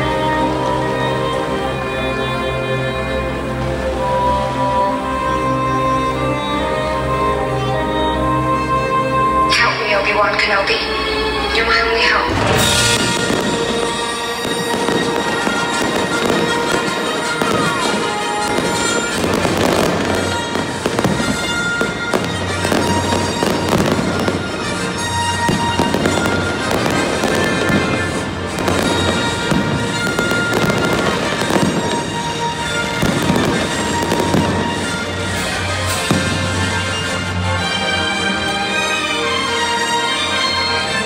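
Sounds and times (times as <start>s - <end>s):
music playing: 0.0s - 41.0s
fireworks bangs and crackles: 12.0s - 37.8s.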